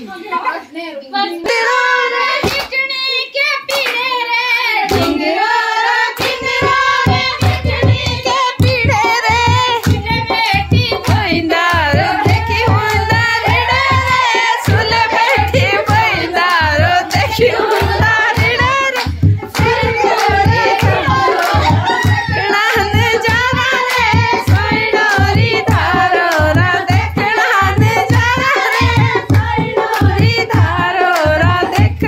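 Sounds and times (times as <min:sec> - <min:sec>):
hand clapping: 0:02.4 - 0:02.8, 0:03.7 - 0:04.1, 0:04.9 - 0:32.0
low drum beat: 0:06.4 - 0:32.0.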